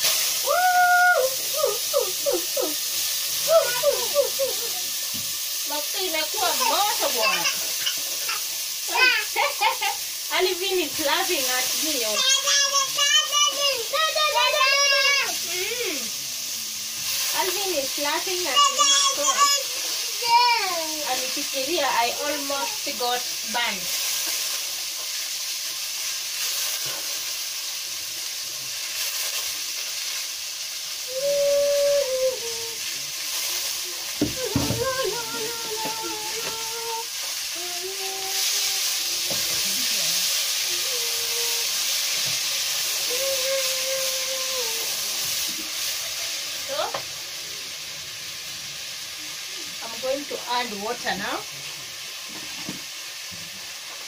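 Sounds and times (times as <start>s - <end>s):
rice sizzling in hot oil: 0.0s - 54.0s.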